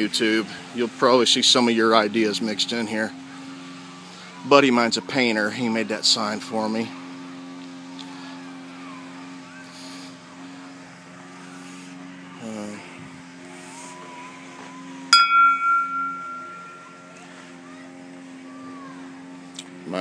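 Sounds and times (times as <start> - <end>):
metal bell ringing: 15.1 - 17.2.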